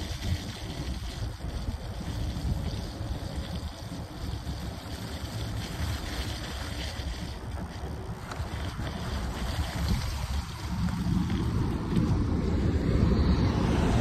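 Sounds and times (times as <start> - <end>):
bike tyres rolling through slush: 0.0 - 14.0
wind buffeting microphone: 0.0 - 14.0.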